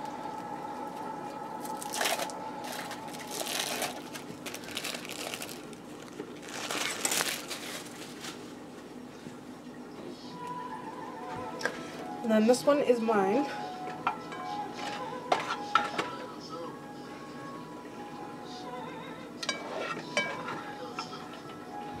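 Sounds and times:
plastic packaging crinkling: 1.6s - 8.6s.

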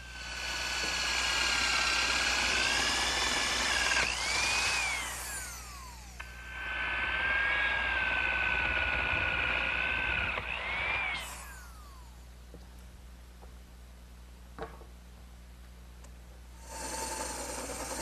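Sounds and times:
electric drill boring wood: 0.0s - 12.2s, 16.6s - 18.0s.

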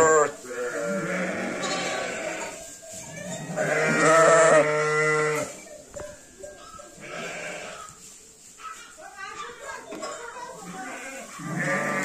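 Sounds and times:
sheep bleating: 0.0s - 2.6s, 3.2s - 5.6s, 7.0s - 8.0s, 10.6s - 12.0s.

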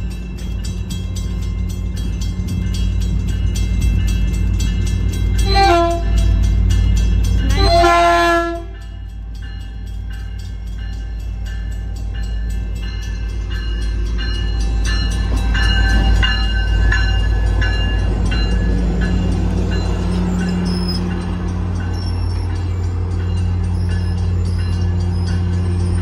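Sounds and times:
crossing bell ringing rapidly: 0.0s - 26.0s
diesel locomotive engine rumble: 0.0s - 26.0s
train horn blasts: 5.4s - 6.5s, 7.4s - 9.0s.

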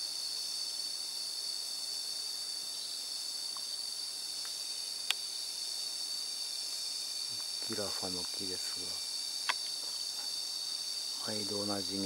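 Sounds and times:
insects chorus: 0.0s - 12.0s.

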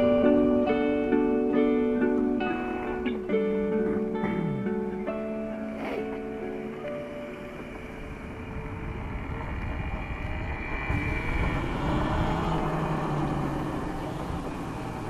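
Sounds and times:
road vehicle rushing: 5.8s - 15.0s.

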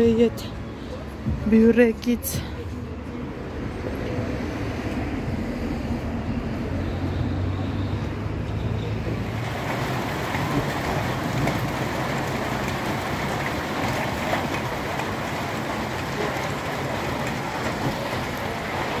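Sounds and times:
rain falling: 9.0s - 19.0s.

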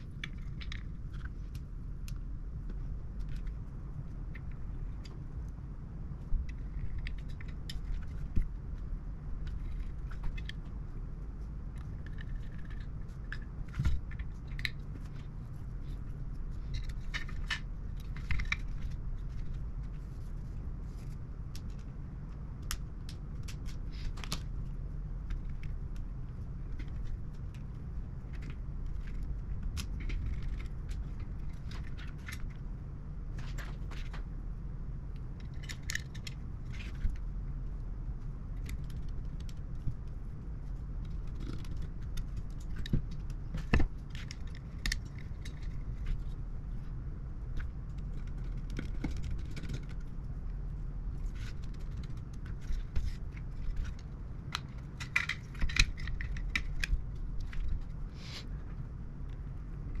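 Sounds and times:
steady low hum: 0.0s - 60.0s.

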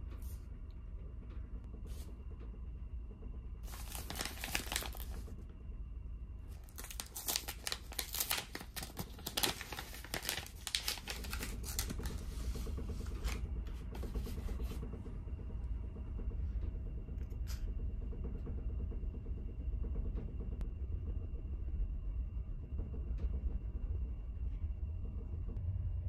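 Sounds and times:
steady low hum: 0.0s - 26.0s
paper bag crinkling: 3.7s - 5.2s, 6.7s - 12.3s.

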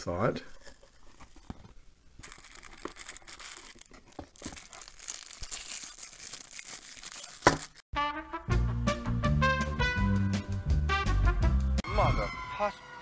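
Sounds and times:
plastic sleeve crinkling: 0.5s - 7.8s
music: 7.9s - 13.0s.

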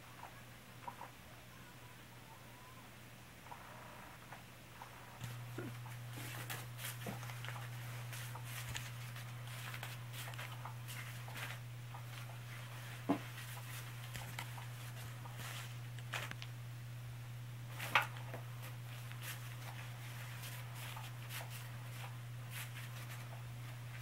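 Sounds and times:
wand rustling and tapping under fabric: 5.2s - 16.5s, 17.7s - 24.0s.

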